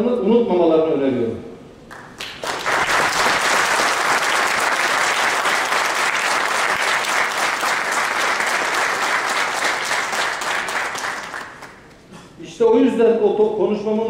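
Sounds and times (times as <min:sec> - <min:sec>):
audience applauding: 0:01.9 - 0:11.9.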